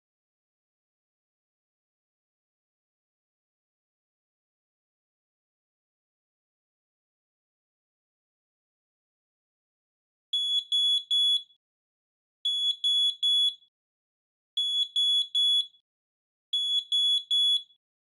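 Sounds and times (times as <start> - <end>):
smoke alarm beeping: 10.4 - 11.5, 12.5 - 13.6, 14.6 - 15.8, 16.6 - 17.7.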